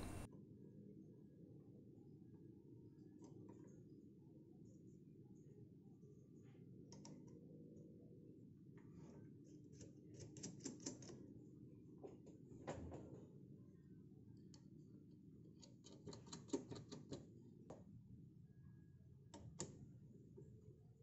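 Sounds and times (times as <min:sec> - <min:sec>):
small metal clicks and taps: 0:15.6 - 0:17.2.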